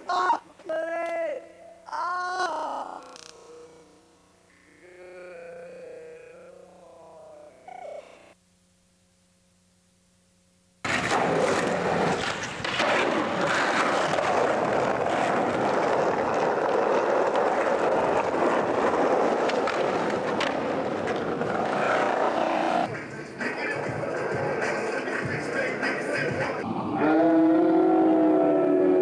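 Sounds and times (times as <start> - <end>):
skateboard wheels rolling on asphalt: 10.8 - 22.9.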